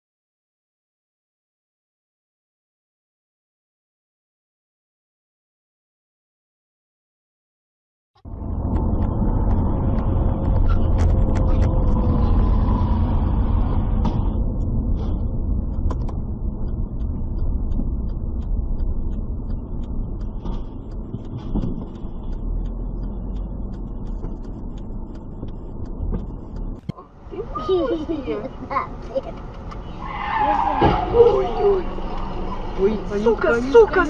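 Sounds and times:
car engine and road rumble: 8.2 - 34.0
light ticks: 14.4 - 26.8.

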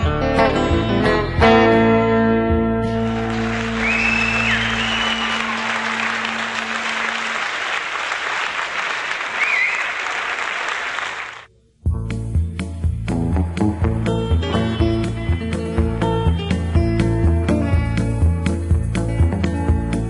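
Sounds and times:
audience applauding: 3.0 - 11.5, 13.3 - 16.4
high whistles: 3.5 - 7.6, 9.2 - 10.2.

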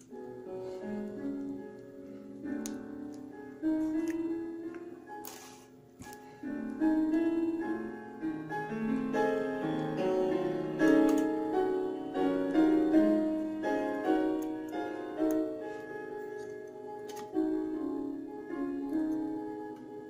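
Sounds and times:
piano music: 0.0 - 20.0.

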